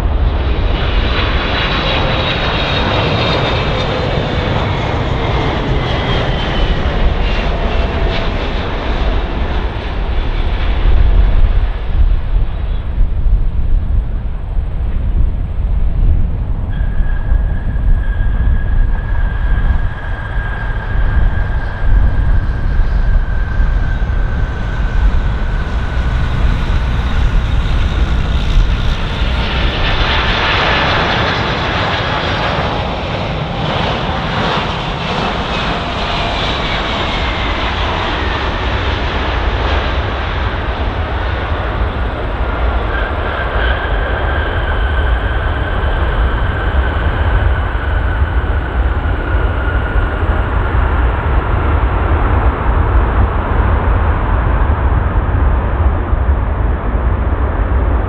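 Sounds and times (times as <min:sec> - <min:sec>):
jet airliner engine whine: 0:00.0 - 0:58.0.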